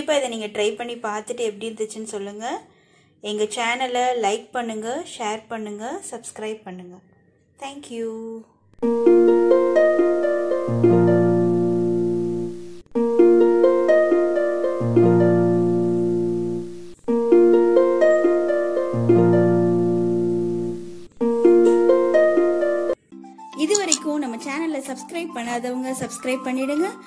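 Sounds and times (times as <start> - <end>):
plucked-string melody: 8.8 - 26.8.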